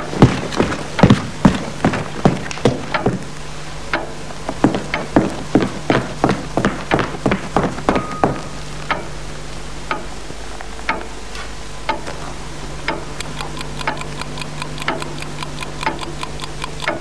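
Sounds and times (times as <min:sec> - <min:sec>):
clock ticking: 0:00.0 - 0:03.3, 0:03.9 - 0:09.1, 0:09.9 - 0:10.1, 0:12.9 - 0:17.0
faster faint ticking: 0:00.0 - 0:03.3, 0:12.9 - 0:17.0
low hum: 0:00.0 - 0:17.0
quick clicks: 0:12.9 - 0:17.0.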